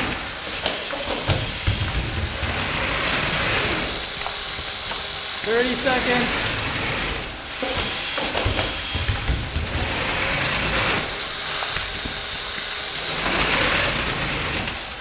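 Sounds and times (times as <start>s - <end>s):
robot motors whirring and rattling: 0.0s - 15.0s
sharp knocks: 0.6s - 3.5s, 7.6s - 11.1s.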